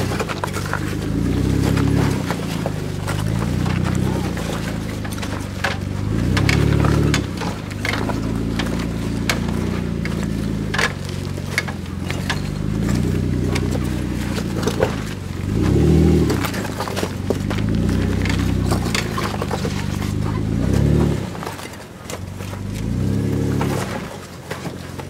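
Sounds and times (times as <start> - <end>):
off-road vehicle engine revving: 0.0 - 25.0
stones crunching under tyres: 0.0 - 25.0.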